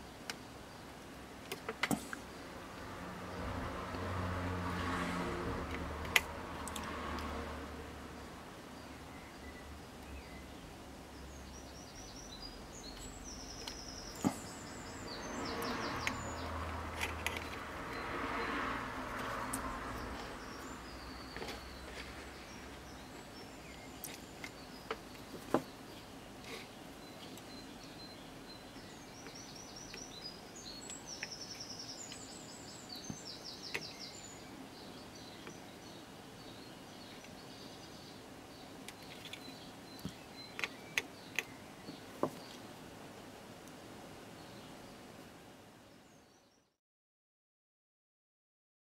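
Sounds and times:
birds chirping: 0:04.8 - 0:43.3.

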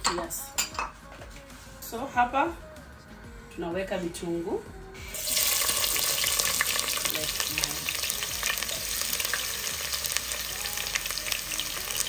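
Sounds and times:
onions sizzling in oil: 0:05.2 - 0:12.0.

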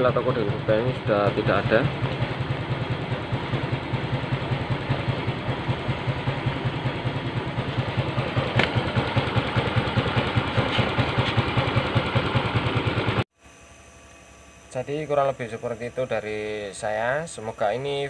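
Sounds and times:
scooter engine idling: 0:00.0 - 0:18.0
sharp click: 0:08.5 - 0:08.8.

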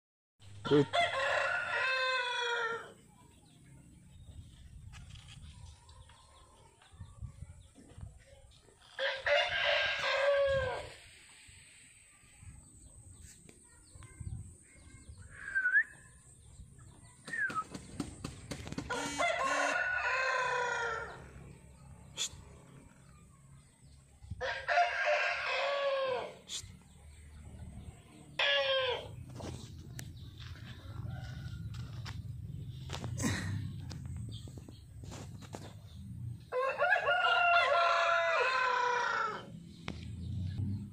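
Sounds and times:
rooster crowing: 0:00.7 - 0:02.9, 0:09.0 - 0:11.0, 0:18.9 - 0:21.3, 0:24.4 - 0:26.4, 0:36.5 - 0:39.5.

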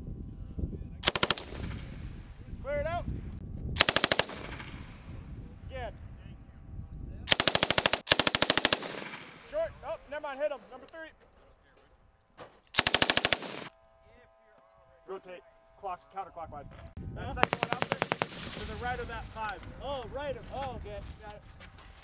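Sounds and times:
machine gun firing bursts: 0:01.0 - 0:02.0, 0:03.8 - 0:04.9, 0:07.3 - 0:09.5, 0:12.8 - 0:13.7, 0:17.4 - 0:18.9.

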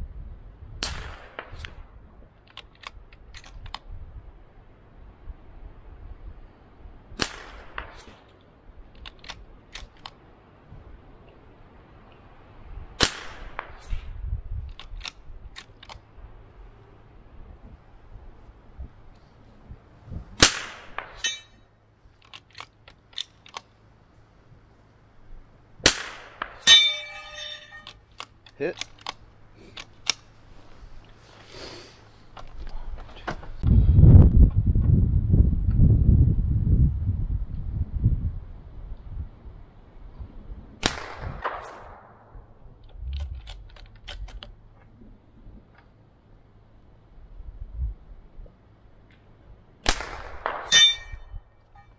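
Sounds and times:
rifle bolt metallic clicks: 0:09.0 - 0:10.2, 0:14.7 - 0:16.0, 0:22.2 - 0:23.7, 0:26.7 - 0:29.2
rifle shots: 0:13.0 - 0:13.9, 0:20.4 - 0:21.3, 0:25.8 - 0:27.6, 0:49.8 - 0:51.0.

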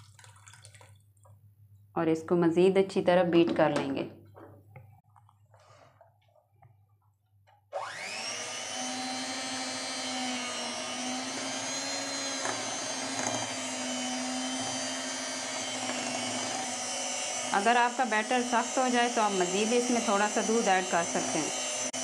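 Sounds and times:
electric hand mixer whining: 0:07.7 - 0:22.0.

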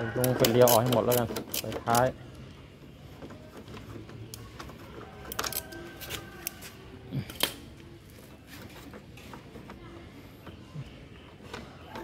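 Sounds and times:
screwdriver and plastic parts clicking: 0:00.2 - 0:02.1.

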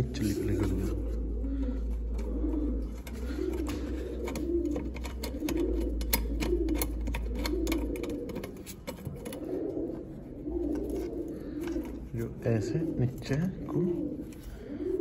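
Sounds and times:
pigeon cooing: 0:00.0 - 0:15.0.

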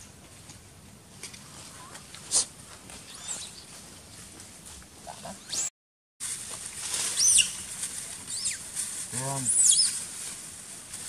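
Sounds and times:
high-pitched squeaky animal calls: 0:03.1 - 0:03.6, 0:07.2 - 0:07.7, 0:08.3 - 0:08.6, 0:09.4 - 0:10.0.

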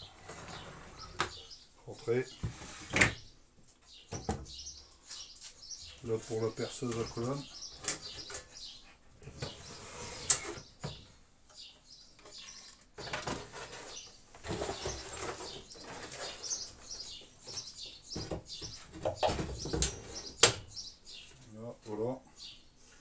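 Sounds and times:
birds chirping: 0:00.0 - 0:23.0
shelf sliding on drawer slides: 0:00.1 - 0:01.4, 0:02.4 - 0:03.2, 0:09.4 - 0:10.6.

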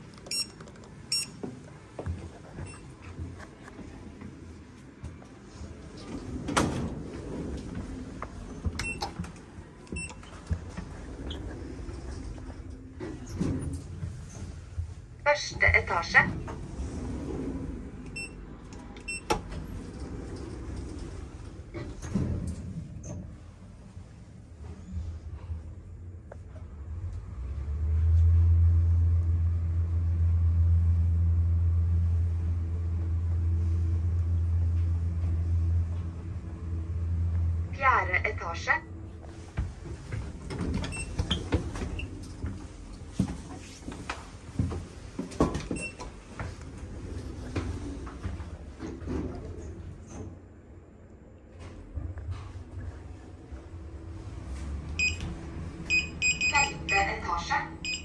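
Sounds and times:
elevator doors sliding open: 0:00.0 - 0:37.8, 0:38.9 - 0:58.0
elevator running rumble: 0:00.0 - 0:58.0
short high beeps: 0:55.9 - 0:57.1.

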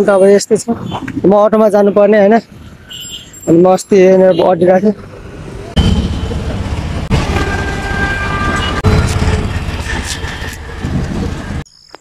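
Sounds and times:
street traffic: 0:00.0 - 0:11.7
auto-rickshaws driving past: 0:05.0 - 0:11.6.

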